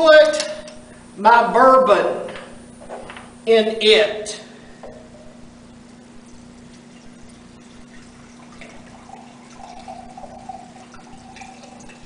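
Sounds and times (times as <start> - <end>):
low hum: 4.4 - 12.0
liquid pouring into glass jar: 5.8 - 12.0.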